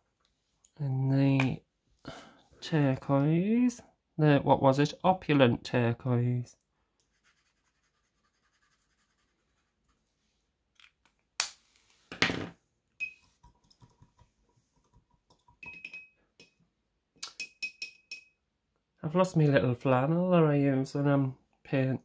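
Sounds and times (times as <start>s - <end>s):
art supplies clattering on wooden table: 12.1s - 12.6s
small ticks and light clinks: 14.8s - 16.6s.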